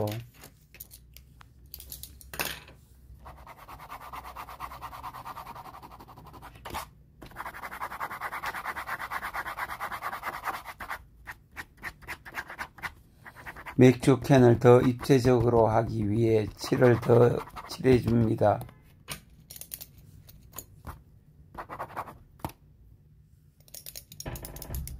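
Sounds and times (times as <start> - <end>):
stylus scratching on touchscreen: 3.2 - 18.5, 21.6 - 22.2.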